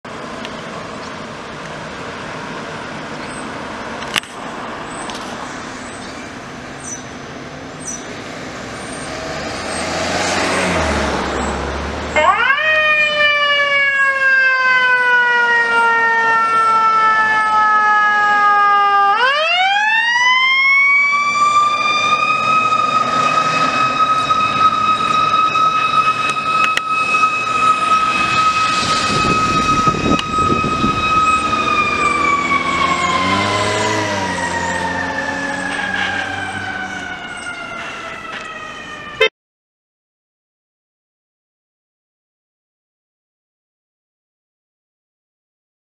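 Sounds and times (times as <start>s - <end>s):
street traffic noise: 0.0s - 39.3s
fire engine siren wailing: 8.8s - 39.3s.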